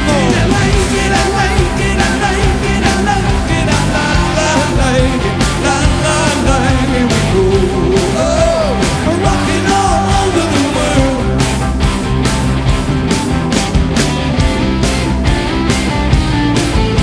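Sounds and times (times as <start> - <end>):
person singing: 0.0 - 11.5
rock music with drum beat: 0.0 - 17.0.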